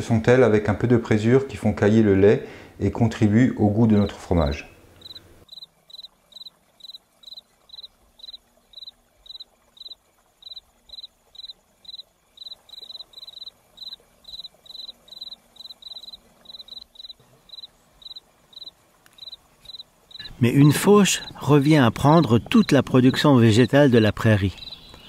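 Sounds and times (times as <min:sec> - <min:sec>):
cricket chirping: 0:05.0 - 0:25.0.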